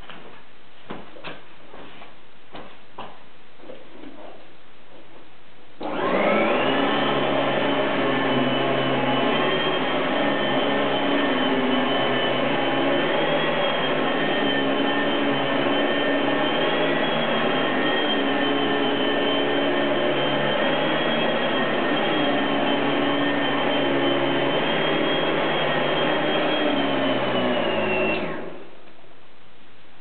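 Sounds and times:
vacuum cleaner running: 0:05.8 - 0:28.8.

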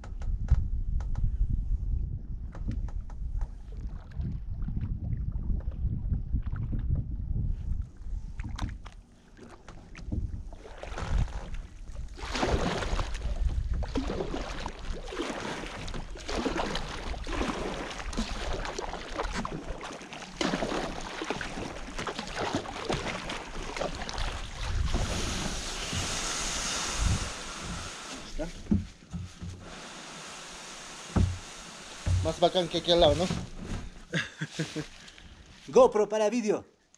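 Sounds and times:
wind rumble on microphone: 0:00.0 - 0:09.0, 0:09.7 - 0:15.1, 0:24.0 - 0:29.7
water splashing around kayak hull: 0:03.0 - 0:07.1, 0:07.7 - 0:35.7
paddle strokes: 0:08.3 - 0:36.0
hull dragged over dry reeds: 0:14.7 - 0:35.9.

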